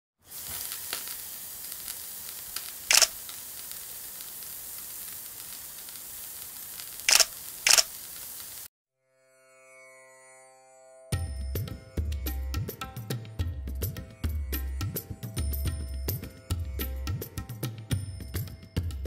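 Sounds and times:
egg sizzling in a frying pan: 0.2 - 8.7
camera shutter clicks: 2.6 - 3.4, 7.0 - 8.0.

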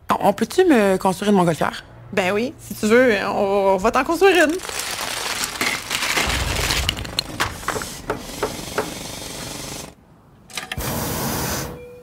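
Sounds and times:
plastic bricks rattling: 4.3 - 9.0.

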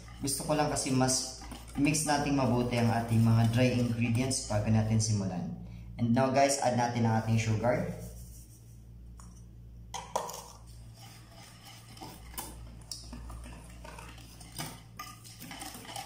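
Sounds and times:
wire whisk scraping steel bowl: 0.0 - 4.8, 10.6 - 16.0.

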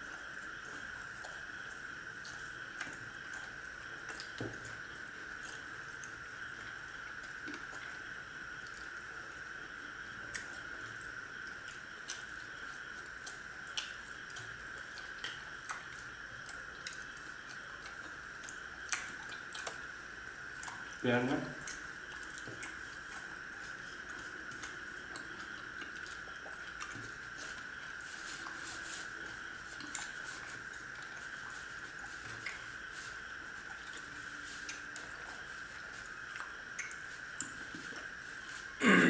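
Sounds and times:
steady high hiss: 0.0 - 39.0
people chewing: 10.2 - 21.0, 21.6 - 39.0.

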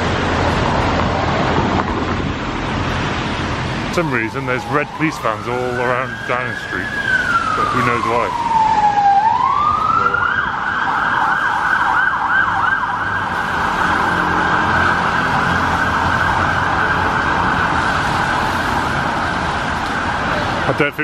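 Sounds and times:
city traffic: 0.0 - 21.0
siren yelping: 4.0 - 20.7.

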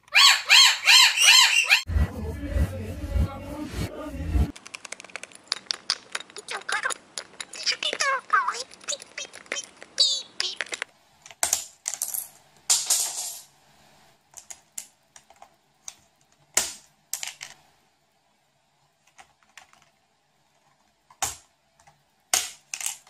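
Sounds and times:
plastic keycaps clicking: 4.5 - 10.9.

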